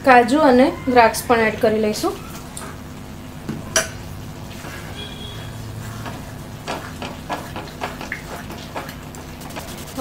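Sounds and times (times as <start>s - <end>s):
spatula stirring thick food: 5.7s - 10.0s.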